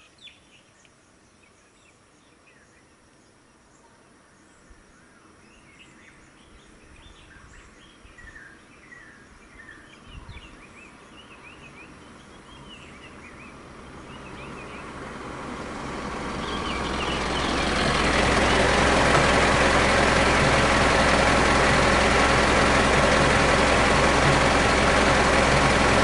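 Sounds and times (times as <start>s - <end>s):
small birds chirping: 0.0s - 26.0s
vehicle engine: 11.1s - 26.0s.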